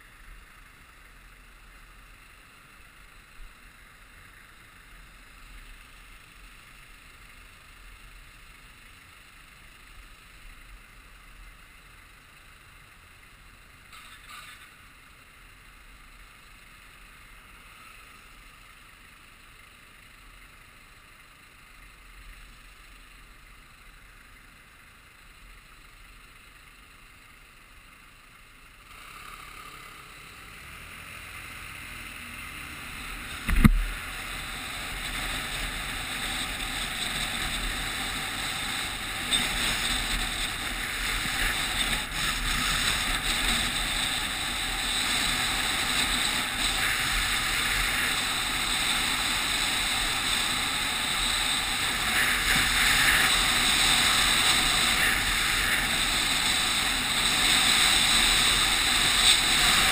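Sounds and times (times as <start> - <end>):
wind and road noise: 0.0 - 59.9
sharp thump: 33.4 - 33.9.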